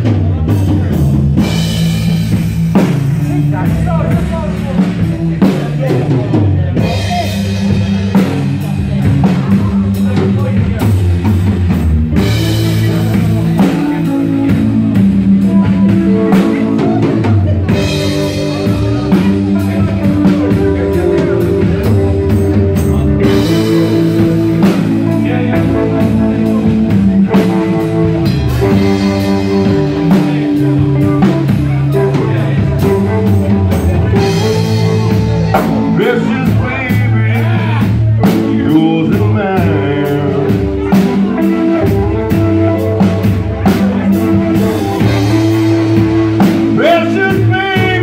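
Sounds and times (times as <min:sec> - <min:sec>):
bass guitar: 0:00.0 - 0:48.0
drum kit: 0:00.0 - 0:48.0
electric guitar: 0:00.0 - 0:48.0.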